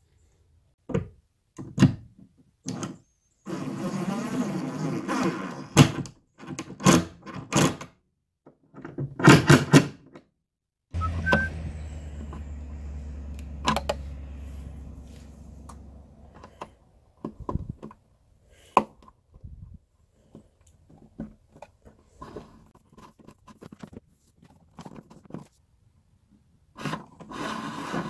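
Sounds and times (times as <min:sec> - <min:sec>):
rough scraping: 0:11.0 - 0:16.7.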